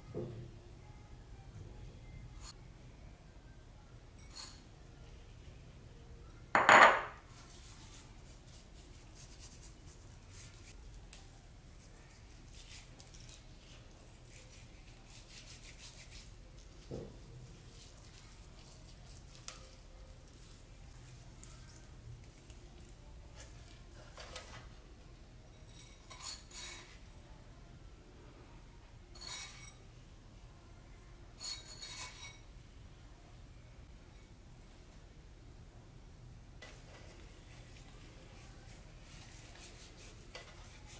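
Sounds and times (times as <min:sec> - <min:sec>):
hands rubbing chicken skin: 0:07.3 - 0:24.6, 0:36.7 - 0:40.9.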